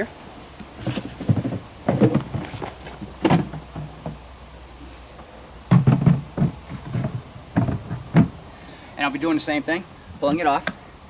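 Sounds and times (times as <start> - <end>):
plastic kayak sections knocking: 5.7 - 8.4.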